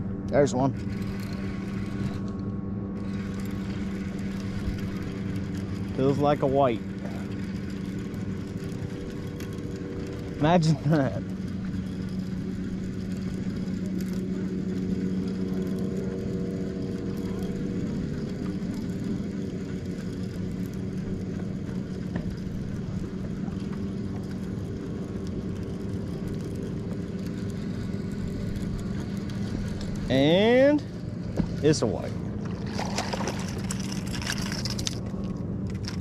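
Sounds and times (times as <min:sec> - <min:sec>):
boat motor humming: 0:00.0 - 0:36.0
wind: 0:00.0 - 0:36.0
water noise: 0:31.3 - 0:36.0.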